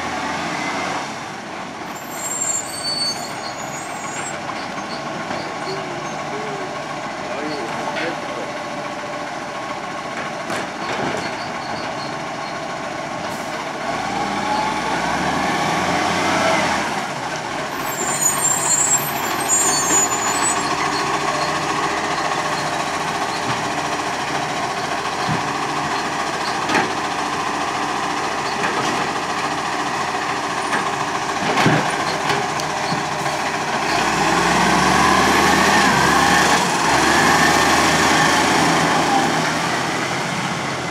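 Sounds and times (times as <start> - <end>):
garbage truck diesel engine: 0.0 - 40.9
high brake squeal: 1.9 - 6.4, 11.2 - 12.6, 17.7 - 23.5.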